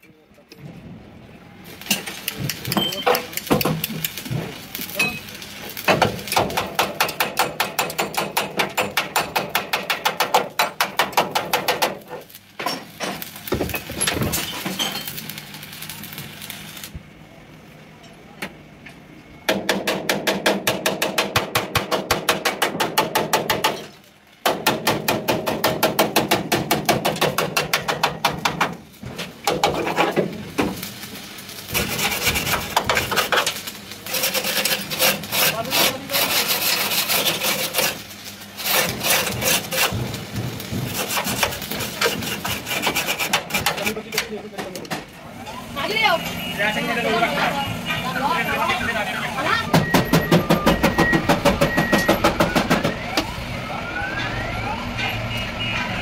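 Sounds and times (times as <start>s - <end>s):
hammering on sheet steel: 1.9s - 5.2s, 5.8s - 14.4s, 19.5s - 30.8s, 31.7s - 38.0s, 38.6s - 45.1s, 49.7s - 53.1s.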